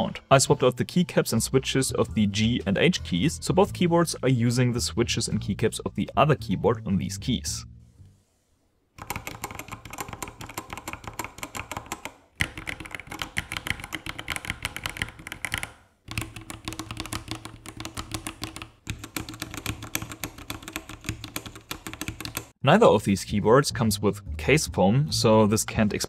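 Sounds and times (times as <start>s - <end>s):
mechanical keyboard typing: 9.0s - 22.5s.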